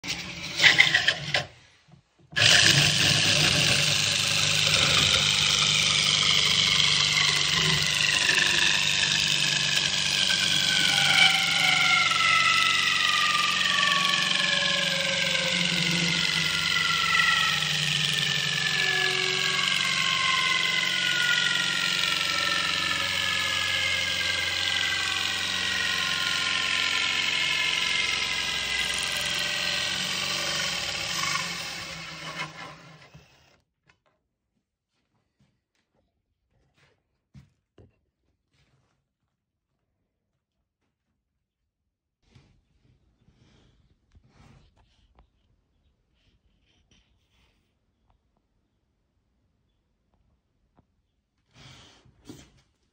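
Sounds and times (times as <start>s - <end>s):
drill motor running: 0.0s - 1.5s, 2.3s - 33.6s
cutter rasping wood: 0.0s - 1.6s, 2.3s - 33.5s
whining tones sliding down: 4.5s - 33.4s.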